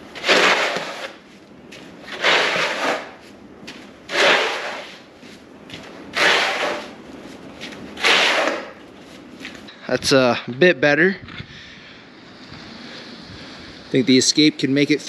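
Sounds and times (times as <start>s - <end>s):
snow shovel scraping concrete: 0.0s - 1.3s, 2.0s - 3.2s, 4.1s - 5.1s, 6.1s - 7.0s, 8.0s - 8.8s.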